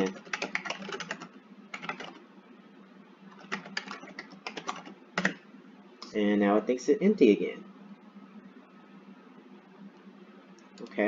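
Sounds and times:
typing on a computer keyboard: 0.0s - 2.2s, 3.3s - 5.4s.

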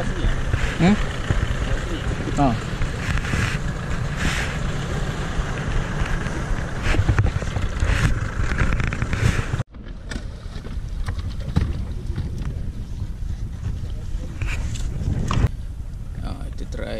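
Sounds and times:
outboard motor running: 0.0s - 9.6s
wind buffeting microphone: 0.0s - 16.9s.

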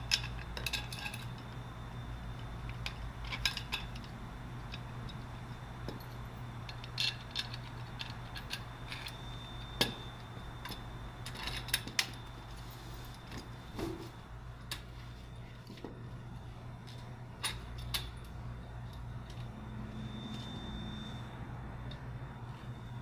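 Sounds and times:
metal parts clinking: 0.0s - 1.6s, 2.7s - 5.2s, 5.9s - 9.9s, 10.6s - 12.6s
steady low hum: 0.0s - 23.0s.

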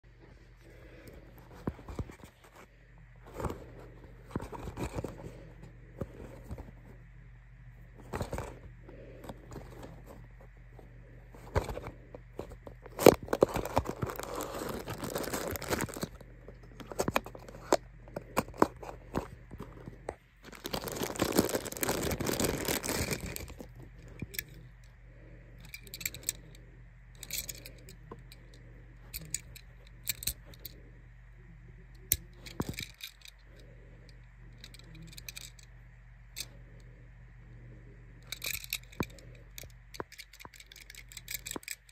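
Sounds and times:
plastic bag crinkling: 12.8s - 17.8s, 20.4s - 24.5s
cardboard box being opened: 12.9s - 16.0s.

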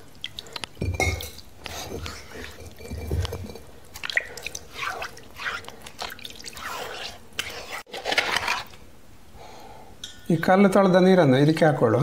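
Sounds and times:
water dripping: 0.0s - 7.5s
hand swishing water: 4.0s - 8.7s.

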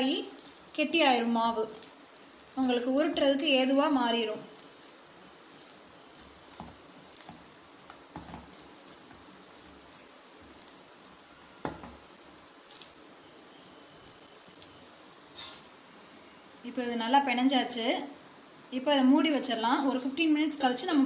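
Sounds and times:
dough being kneaded by hand: 0.0s - 15.6s.

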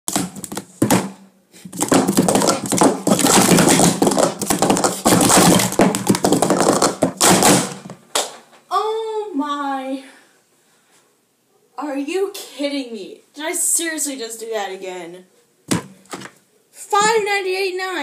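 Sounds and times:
plastic cups clattering: 1.7s - 7.9s.

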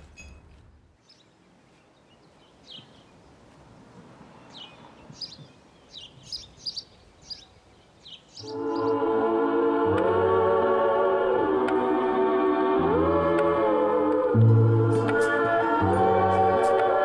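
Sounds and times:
birds chirping: 0.1s - 9.1s
music: 8.5s - 17.0s.

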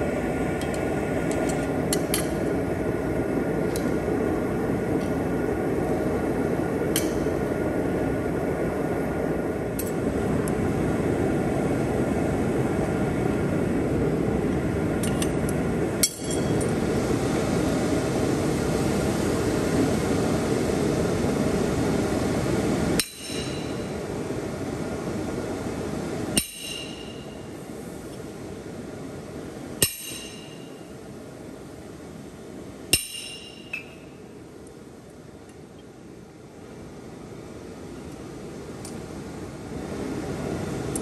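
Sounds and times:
ringing metal strikes: 23.0s - 23.8s, 26.4s - 27.4s, 29.8s - 30.8s, 32.9s - 34.0s.

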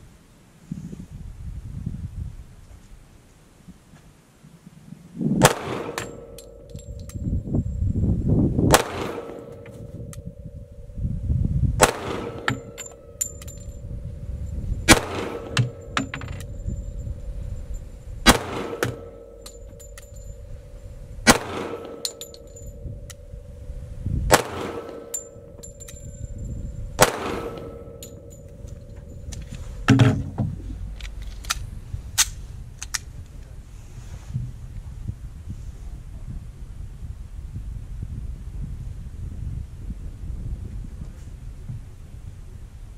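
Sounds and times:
pistol shots: 5.4s - 6.4s, 8.7s - 9.6s, 11.8s - 12.9s, 14.9s - 16.0s, 18.3s - 19.4s, 21.3s - 22.3s, 24.3s - 25.3s, 27.0s - 28.2s.

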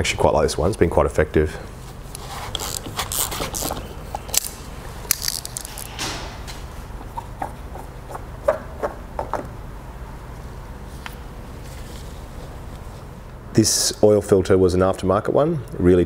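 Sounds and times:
cloth rag rustling: 10.8s - 13.2s.

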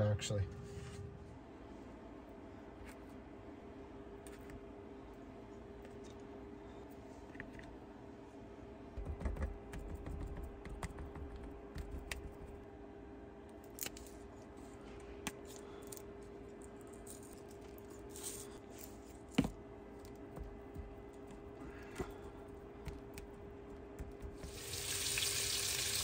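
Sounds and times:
faint steady hum: 0.0s - 26.0s
hands patting raw meat: 20.2s - 24.6s.

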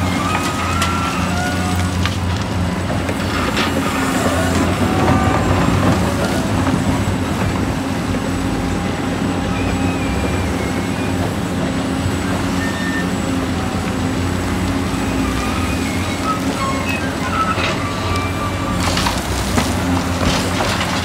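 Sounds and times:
diesel machinery engine hum: 0.0s - 21.0s
faint high squeals: 12.5s - 13.3s, 14.9s - 18.9s.

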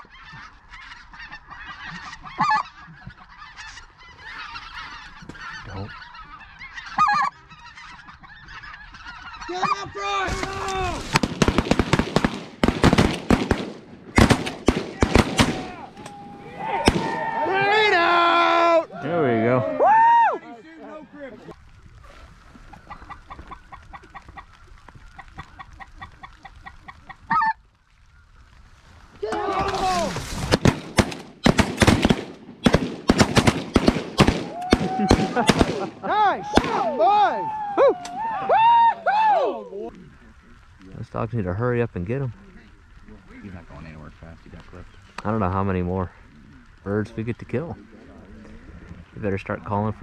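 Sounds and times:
geese yelping calls: 0.0s - 11.2s, 22.3s - 30.2s.

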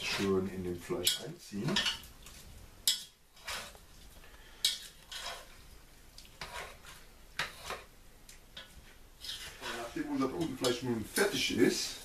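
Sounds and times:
spoon scraping a pot: 0.0s - 3.9s, 4.5s - 7.9s, 8.6s - 10.8s.

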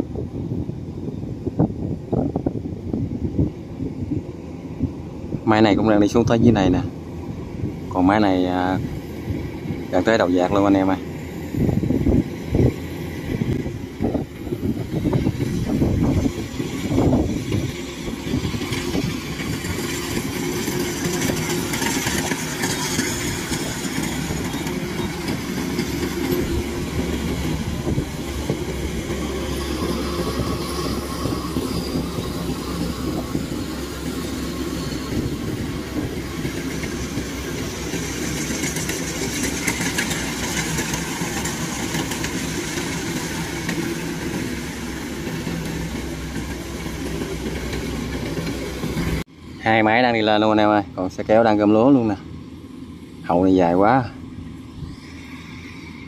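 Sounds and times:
crawler tracks rattling: 4.6s - 52.2s.

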